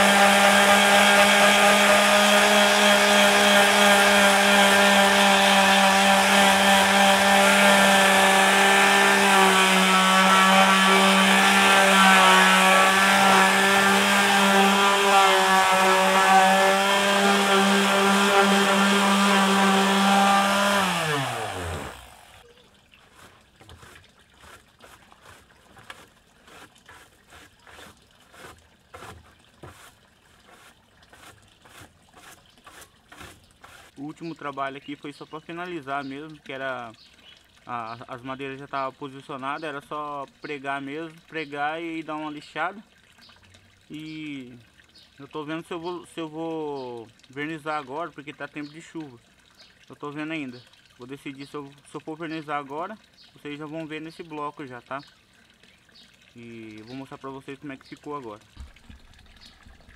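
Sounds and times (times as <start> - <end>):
electric palm sander on wood: 0.0 - 22.4
hand brush sweeping boards: 23.1 - 33.9.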